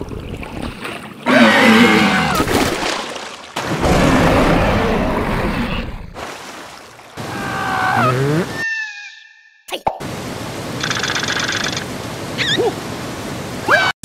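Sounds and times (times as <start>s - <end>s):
cartoon water splashes: 1.9s - 8.6s
high falling cry: 7.2s - 8.8s.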